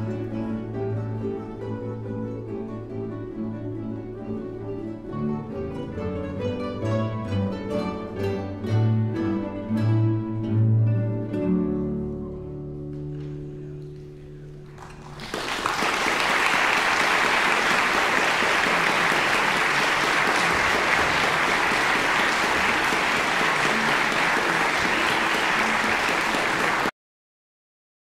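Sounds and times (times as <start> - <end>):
audience applause: 14.6 - 26.9.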